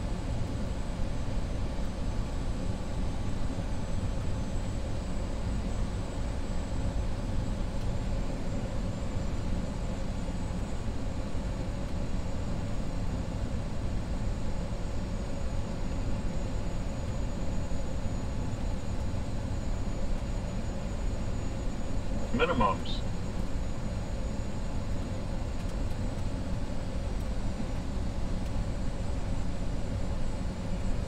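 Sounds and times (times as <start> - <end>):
airliner engine rumble: 17.8 - 25.6
faint high whine: 18.2 - 23.2.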